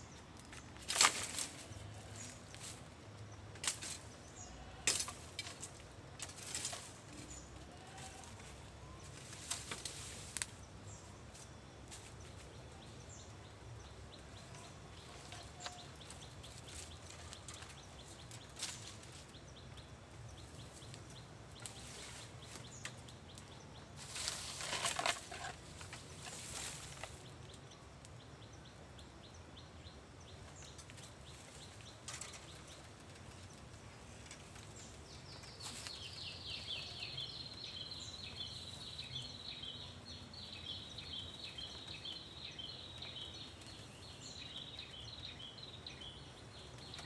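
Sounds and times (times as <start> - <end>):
dry leaves crackling and rustling: 0.3 - 13.1, 14.4 - 19.4, 20.4 - 27.7, 30.4 - 40.0.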